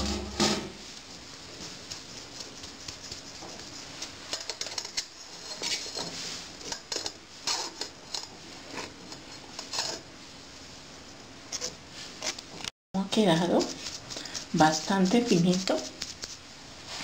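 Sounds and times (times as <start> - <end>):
spoon scraping on wire sieve: 13.1 - 16.4.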